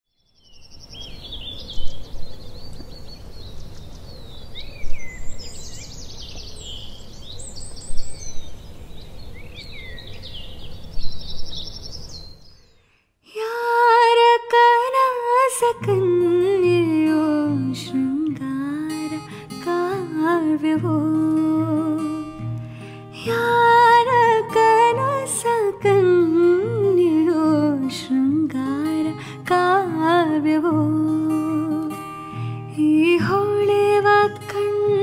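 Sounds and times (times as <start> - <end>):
birds chirping: 0.3 - 13.0
acoustic guitar: 13.4 - 35.0.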